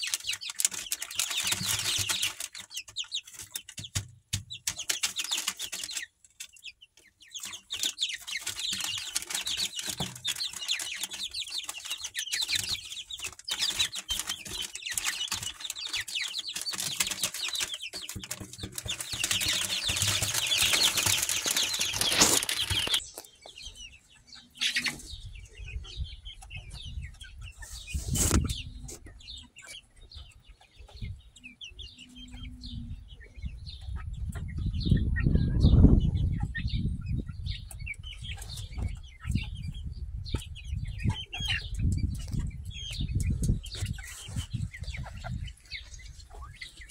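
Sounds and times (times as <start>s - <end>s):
wings flapping: 0.0s - 6.1s, 7.4s - 23.0s
chicks peeping: 0.0s - 46.9s.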